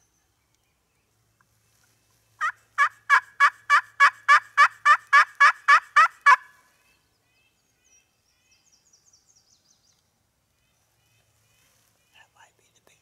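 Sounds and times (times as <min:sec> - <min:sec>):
turkey yelping: 0:02.4 - 0:06.5.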